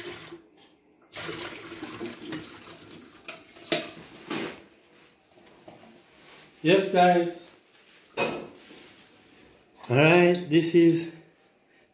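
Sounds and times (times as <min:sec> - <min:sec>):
water pouring into metal sink: 0:00.0 - 0:00.4, 0:01.1 - 0:03.8.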